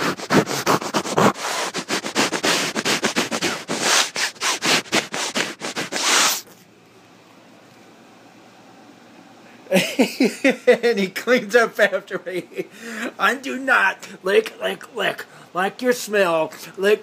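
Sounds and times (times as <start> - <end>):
fur rubbing against microphone: 0.0 - 6.6.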